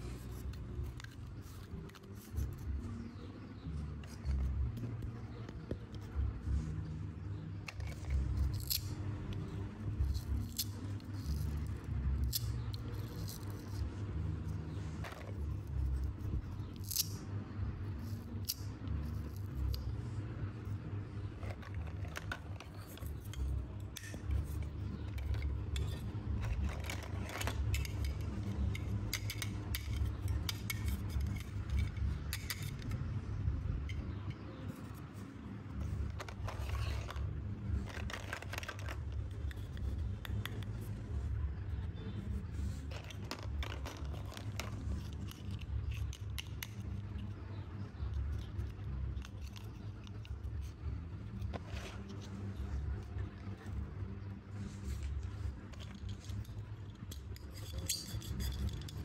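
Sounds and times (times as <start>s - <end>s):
plastic toys clattering: 14.8s - 16.0s, 21.3s - 33.0s, 35.8s - 40.9s, 42.6s - 47.4s, 54.9s - 59.0s.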